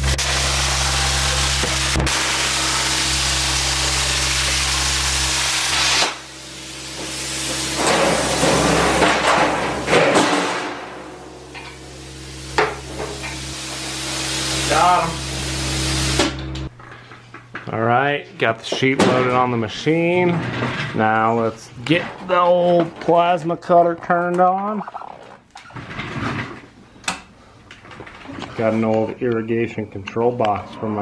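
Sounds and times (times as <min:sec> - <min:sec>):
plasma cutter hissing: 0:00.0 - 0:09.9, 0:10.5 - 0:16.5
sheet metal scraping: 0:07.4 - 0:11.8
sheet metal clanks: 0:07.8 - 0:11.8.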